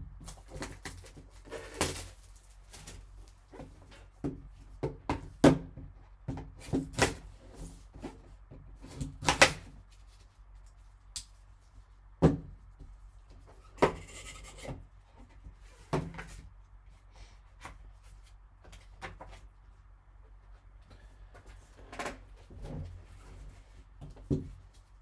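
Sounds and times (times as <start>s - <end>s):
taps and knocks on cardboard box: 4.2s - 7.2s, 24.0s - 24.6s.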